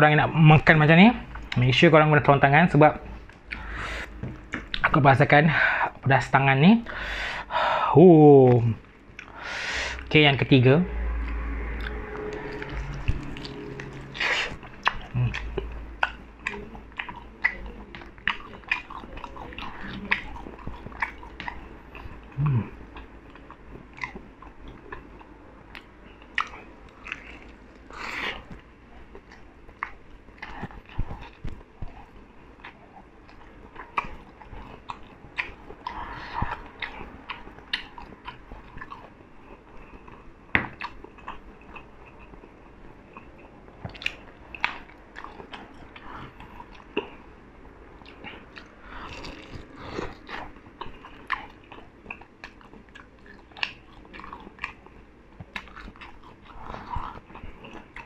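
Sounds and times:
chewing with wet mouth sounds: 0:02.9 - 0:05.0, 0:08.6 - 0:10.0, 0:11.2 - 0:58.0
crunch of fried skin: 0:49.0 - 0:50.4.

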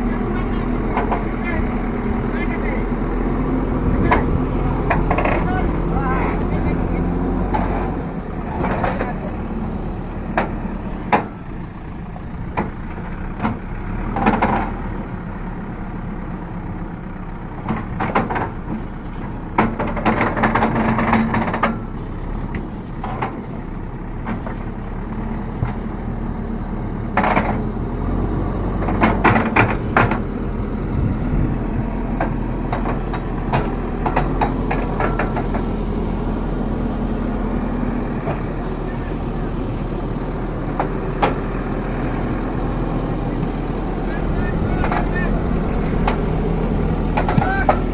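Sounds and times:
diesel engine running: 0:00.0 - 0:47.9
metallic clanks and knocks: 0:00.8 - 0:01.5, 0:04.0 - 0:05.6, 0:07.5 - 0:09.2, 0:10.3 - 0:11.4, 0:12.5 - 0:14.8, 0:17.6 - 0:18.9, 0:19.5 - 0:21.9, 0:22.5 - 0:23.5, 0:27.2 - 0:27.7, 0:28.8 - 0:30.3, 0:32.1 - 0:35.8, 0:44.7 - 0:46.4, 0:47.1 - 0:47.9.

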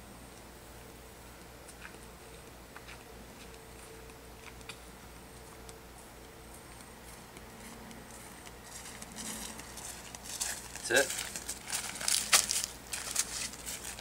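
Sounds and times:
footsteps swishing through grass: 0:07.1 - 0:14.0.

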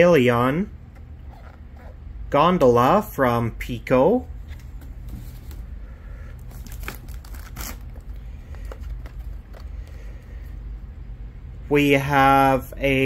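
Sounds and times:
plastic packing crinkling: 0:06.4 - 0:10.0.

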